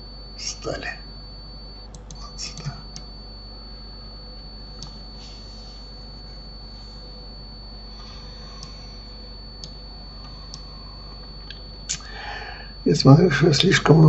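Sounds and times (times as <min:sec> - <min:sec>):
thin high whine: 0:00.0 - 0:14.0
computer mouse clicks: 0:09.6 - 0:10.6.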